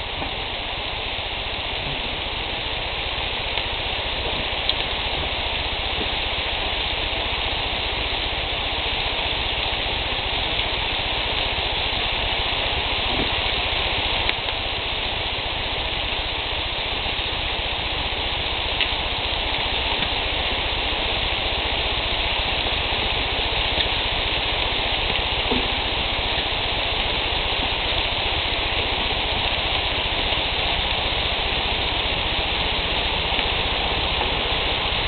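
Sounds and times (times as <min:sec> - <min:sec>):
low rumble: 0:00.0 - 0:07.4
meat sizzling on a grill: 0:00.0 - 0:35.0.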